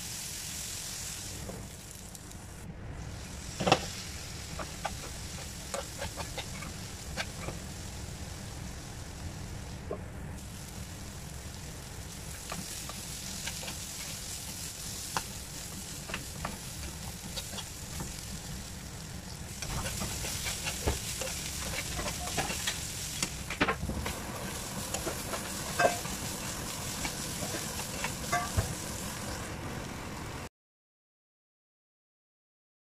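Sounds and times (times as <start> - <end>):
vegetables sizzling in a pan: 0.0 - 30.5
spatula scraping a pan: 4.5 - 7.6, 12.6 - 18.2, 19.6 - 23.2, 24.5 - 28.8.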